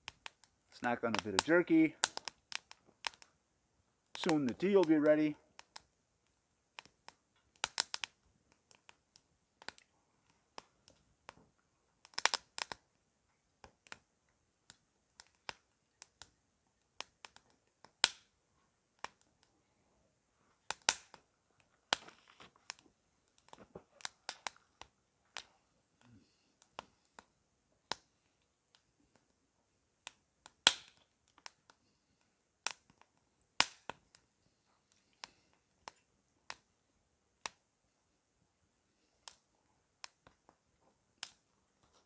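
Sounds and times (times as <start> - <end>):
twig fire crackling and popping: 0.0 - 42.0.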